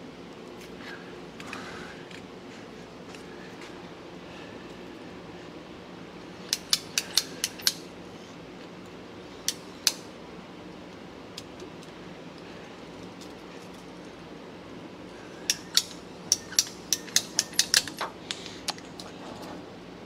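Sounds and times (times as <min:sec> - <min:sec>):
steady low hum: 0:00.0 - 0:20.0
pipe cutter clicking: 0:15.5 - 0:18.1.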